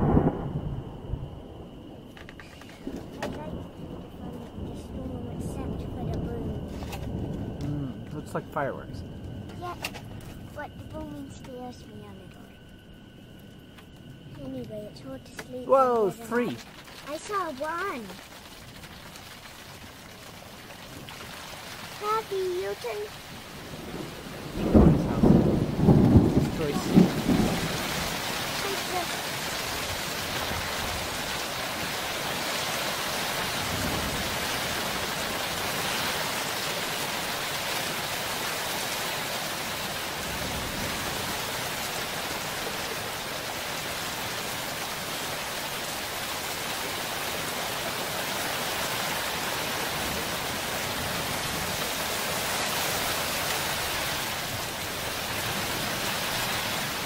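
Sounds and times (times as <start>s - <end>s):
faint low thunder rumbles: 0.0s - 57.0s
heavy rain hissing: 0.0s - 57.0s.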